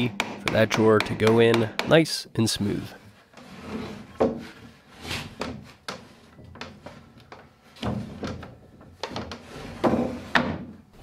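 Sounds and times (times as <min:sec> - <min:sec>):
wooden knocks: 0:00.0 - 0:02.0
wooden drawer rubbing: 0:03.4 - 0:07.0, 0:09.0 - 0:10.7.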